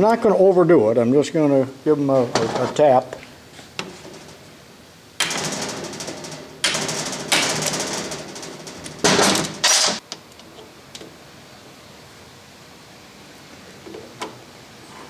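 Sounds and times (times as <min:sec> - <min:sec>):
hammer striking impact driver: 0:05.2 - 0:10.0.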